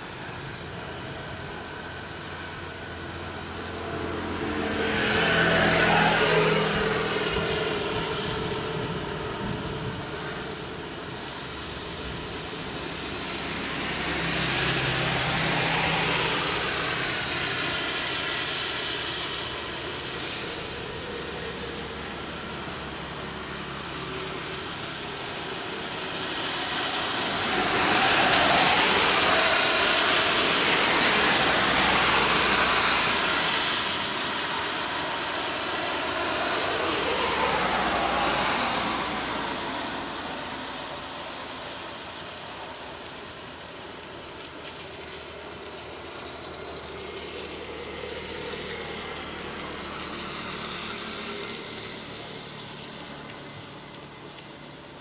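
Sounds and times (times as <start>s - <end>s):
vehicle passing: 3.9s - 8.4s, 25.5s - 42.8s.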